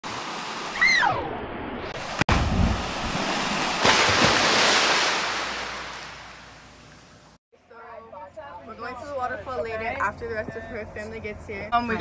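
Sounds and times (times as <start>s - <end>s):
loud water splashing: 1.9s - 6.8s.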